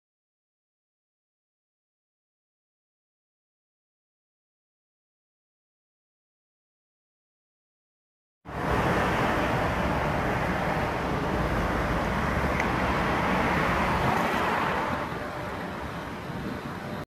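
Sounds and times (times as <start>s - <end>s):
street traffic: 8.5s - 17.0s
wind rumbling on microphone: 8.5s - 17.0s.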